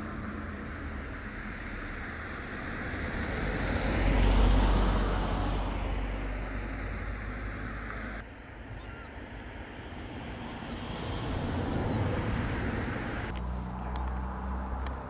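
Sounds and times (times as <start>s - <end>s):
car passing: 0.0s - 15.0s.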